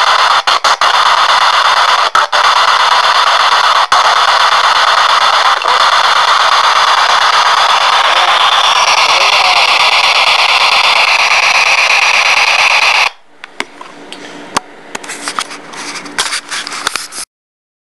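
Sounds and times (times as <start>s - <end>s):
radio static hiss: 0.0s - 13.2s.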